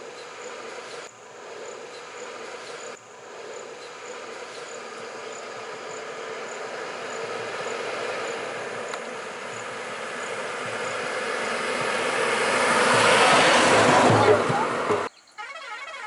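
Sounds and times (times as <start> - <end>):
faint insect chirps: 0.0 - 11.2, 15.1 - 15.5
bus diesel engine: 0.0 - 15.1.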